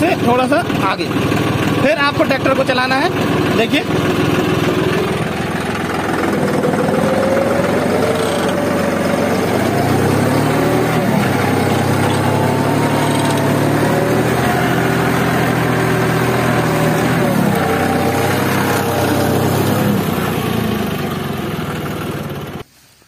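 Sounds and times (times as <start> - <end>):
tractor diesel engine under load: 0.0 - 22.7
deep steady drone: 2.8 - 20.4.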